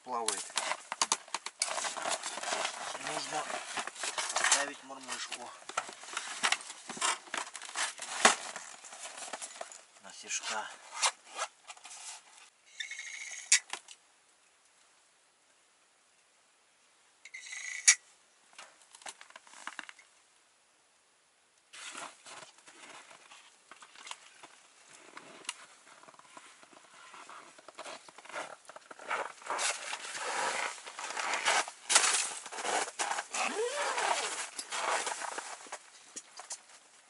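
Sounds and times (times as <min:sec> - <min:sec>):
rustling scraping and knocking: 0:00.2 - 0:12.5, 0:21.7 - 0:36.8.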